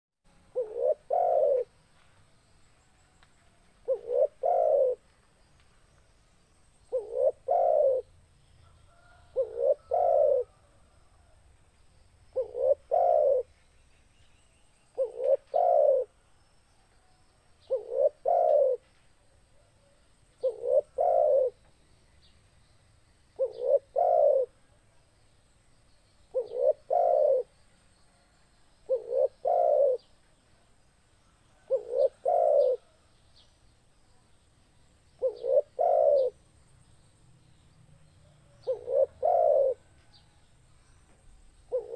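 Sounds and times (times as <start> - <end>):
dove cooing: 0.5 - 1.7, 3.8 - 5.0, 6.9 - 8.1, 8.9 - 10.7, 12.3 - 13.5, 14.9 - 16.2, 17.6 - 18.9, 19.6 - 21.6, 23.4 - 24.6, 26.3 - 27.5, 28.9 - 30.1, 31.6 - 33.0, 35.2 - 36.4, 38.4 - 39.9, 41.7 - 41.9.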